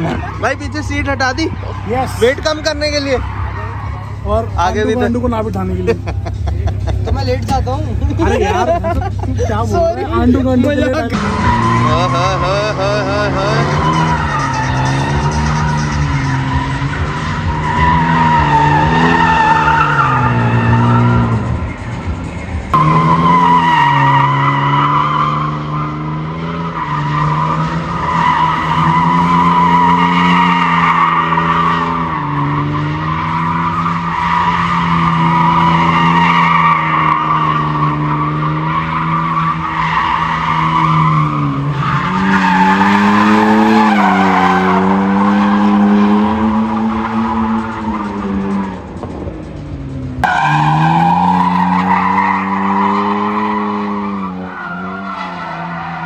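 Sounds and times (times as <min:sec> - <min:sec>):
car engine at high revs: 0:00.0 - 0:56.0
tyres squealing: 0:10.2 - 0:21.5, 0:22.8 - 0:48.9, 0:50.2 - 0:56.0.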